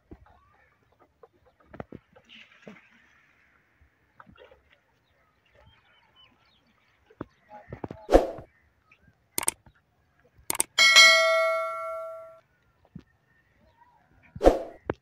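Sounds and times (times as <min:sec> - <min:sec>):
sharp mouse clicks: 0:10.5 - 0:10.8
notification bell ding: 0:10.5 - 0:12.4
whoosh: 0:14.4 - 0:14.8.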